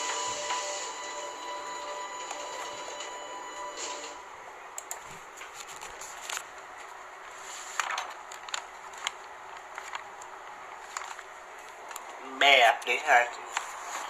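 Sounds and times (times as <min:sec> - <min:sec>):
soft clicks: 0:04.8 - 0:06.4
paper rustling and crinkling: 0:05.1 - 0:12.2, 0:13.5 - 0:14.0.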